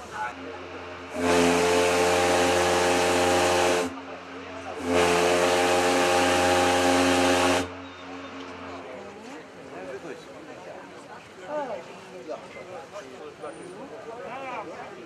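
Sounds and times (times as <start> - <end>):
loud steam hiss: 0.0 - 7.7
steam whistle blasts: 1.1 - 3.9, 4.8 - 7.8.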